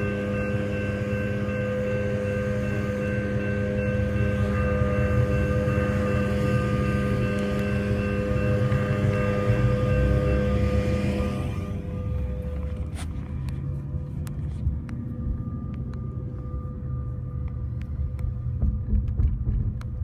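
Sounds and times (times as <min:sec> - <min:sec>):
railroad crossing bell ringing: 0:00.0 - 0:18.6
low rumble: 0:08.1 - 0:20.0.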